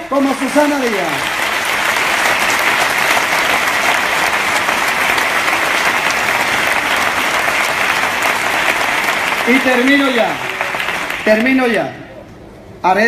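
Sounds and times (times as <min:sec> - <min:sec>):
audience applauding: 0:00.2 - 0:12.0.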